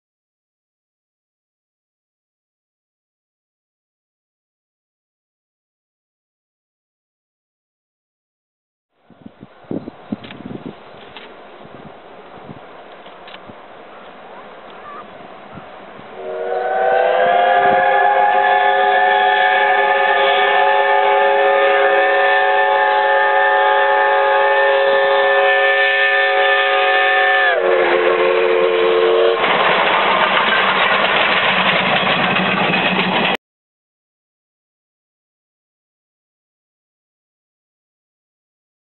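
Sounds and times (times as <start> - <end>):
passing train rushing: 9.2 - 33.4
steam whistle blasts: 16.1 - 29.4.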